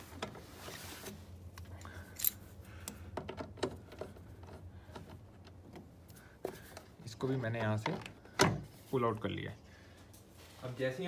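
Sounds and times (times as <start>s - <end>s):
light clicks of nut and tool: 1.5s - 6.2s.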